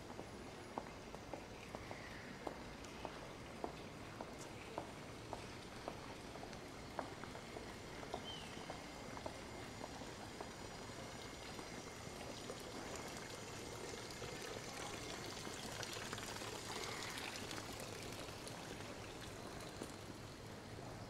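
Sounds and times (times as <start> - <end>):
running water splashing: 10.7 - 20.2.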